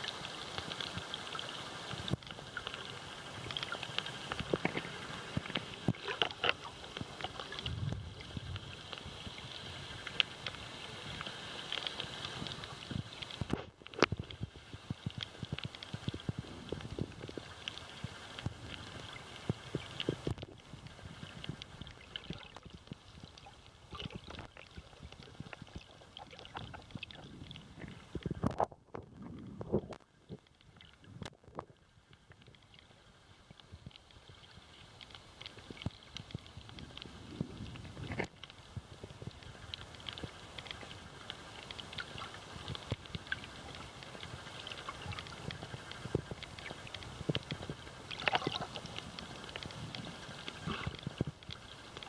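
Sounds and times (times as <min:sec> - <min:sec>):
underwater hiss: 0:00.0 - 0:13.4
faint underwater hiss: 0:00.0 - 0:28.6, 0:29.2 - 0:52.0
clicks and crackles: 0:00.1 - 0:52.0.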